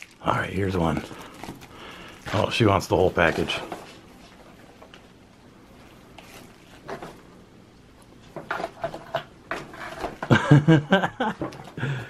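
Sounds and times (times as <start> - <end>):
paper packaging rustling: 0.0 - 5.2, 5.8 - 7.3.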